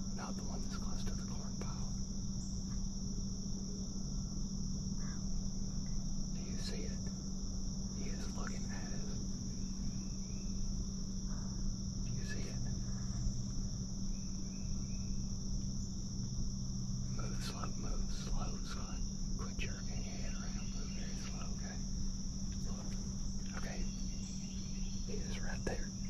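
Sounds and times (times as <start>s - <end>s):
insects chirping: 0.0s - 26.0s.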